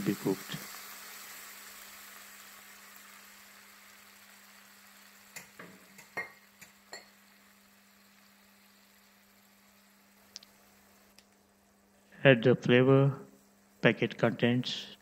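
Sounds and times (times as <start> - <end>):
water sizzling in hot pan: 0.0 - 11.2.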